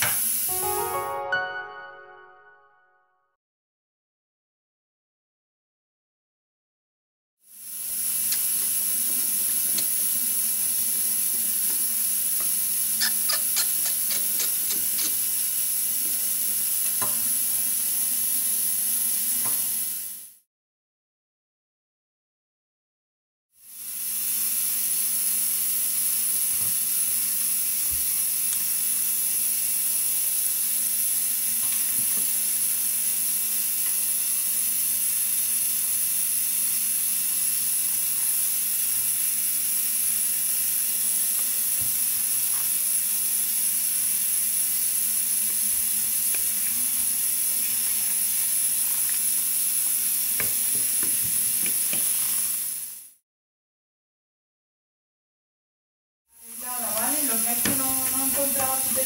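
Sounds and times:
steady hiss: 7.5 - 16.6.

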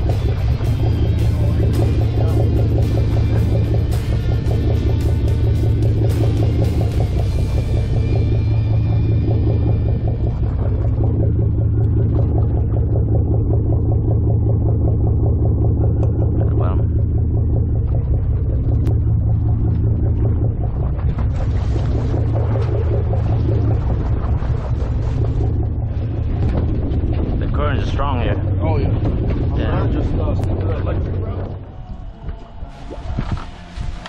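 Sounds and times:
boat engine rumbling: 0.0 - 34.0.

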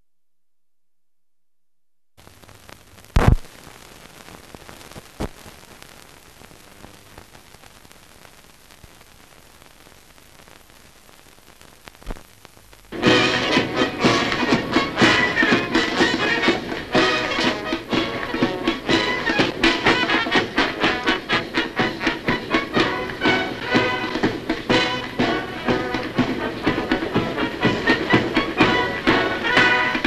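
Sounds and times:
sharp pops: 2.2 - 12.9
film soundtrack hiss and crackle: 2.2 - 30.0
music: 12.9 - 30.0.

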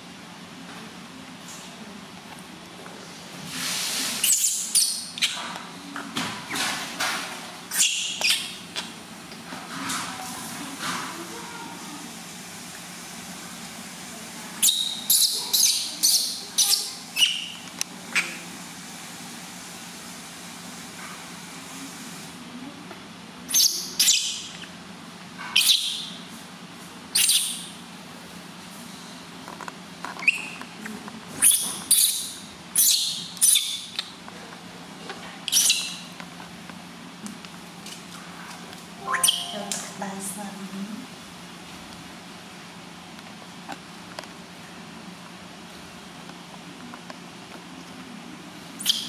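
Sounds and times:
baby monkey squealing: 4.2 - 5.4, 7.7 - 8.6, 14.6 - 18.4, 23.5 - 24.7, 25.5 - 26.1, 27.1 - 27.7, 30.2 - 30.6, 31.4 - 34.0, 35.5 - 36.1, 48.8 - 49.0.

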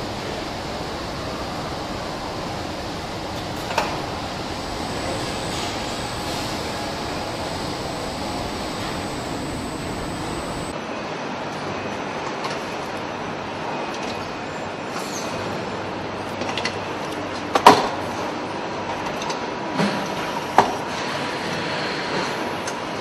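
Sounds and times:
machinery humming: 0.0 - 10.8.

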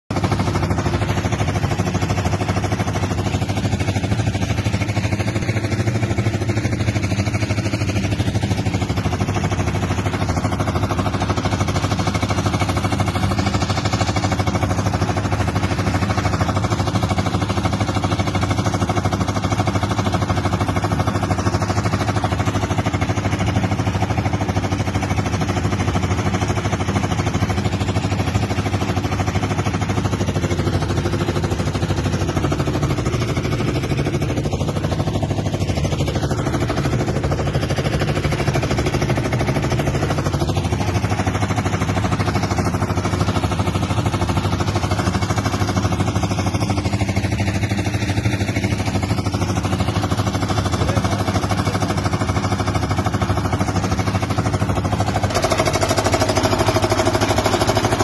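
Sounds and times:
concrete mixer engine running: 0.0 - 58.0.

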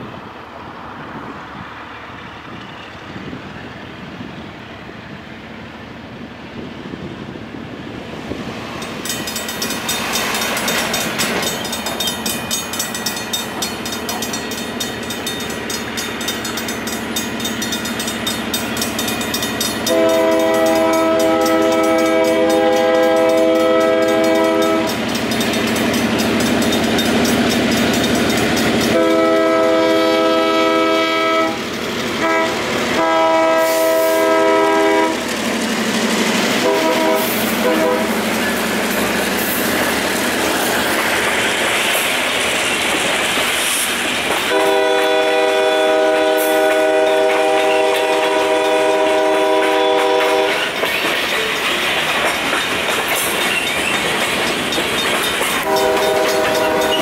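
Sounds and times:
train rumble: 0.0 - 57.0
crossing bell ringing: 8.8 - 29.2, 51.4 - 57.0
locomotive horn blast: 19.8 - 25.0, 28.9 - 31.6, 32.2 - 35.2, 36.6 - 38.2, 44.5 - 50.6, 55.6 - 57.0.

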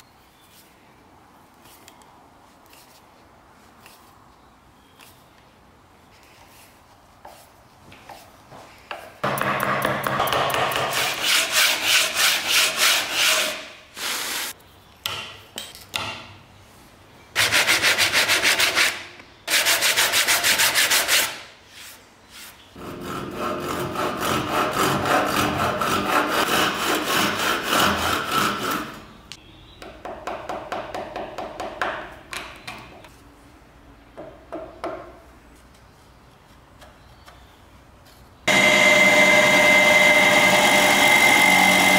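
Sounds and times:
wood sanded by hand: 22.8 - 28.9.

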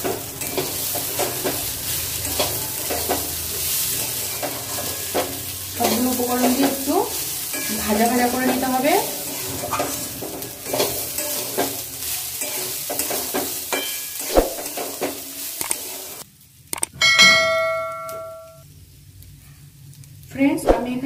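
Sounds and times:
metal spatula scraping: 0.0 - 16.2
rice and vegetables sizzling: 0.0 - 17.1, 18.4 - 21.0
bell-like notification ding: 17.0 - 18.6.

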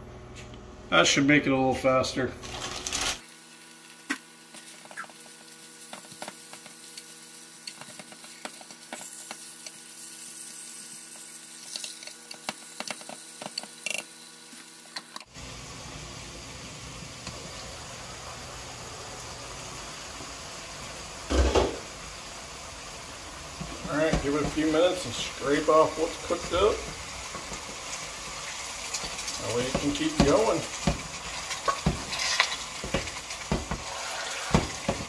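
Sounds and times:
meat sizzling: 2.5 - 35.0
wooden spoon scraping in pot: 28.9 - 35.0.

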